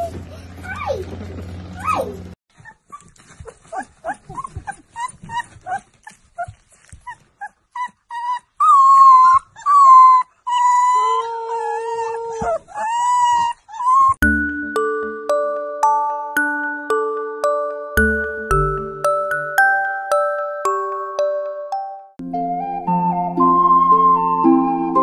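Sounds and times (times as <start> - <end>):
puppy squeaking and howling: 1.8 - 14.2.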